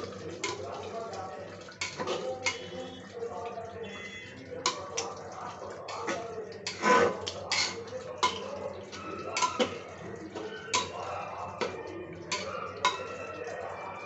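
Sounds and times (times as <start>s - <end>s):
metal ladle clinking against pot: 0.4s - 0.9s, 1.7s - 3.1s, 5.8s - 13.6s.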